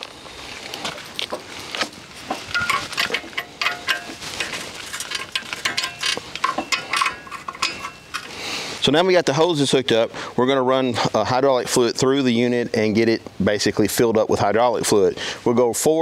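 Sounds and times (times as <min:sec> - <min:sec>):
metal coupler clicks and clinks: 0:02.5 - 0:08.4.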